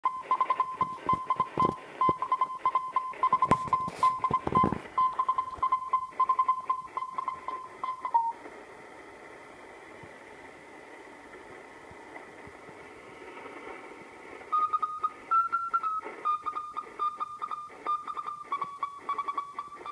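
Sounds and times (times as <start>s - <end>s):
morse code beeping tone: 0.1s - 8.4s, 14.5s - 19.9s
static crackles: 0.1s - 19.9s
radio band hiss: 0.3s - 19.9s.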